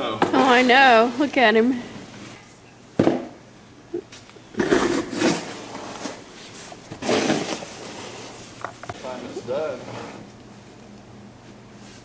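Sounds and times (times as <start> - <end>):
snow shovel scraping pavement: 4.6 - 6.2, 6.9 - 10.2.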